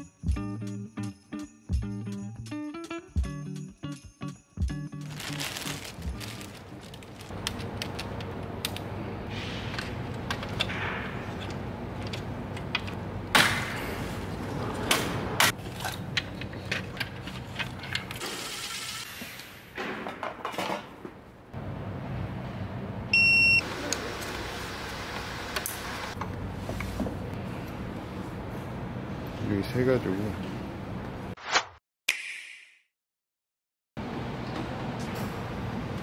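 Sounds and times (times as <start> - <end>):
plastic bag rustling: 5.0 - 8.1.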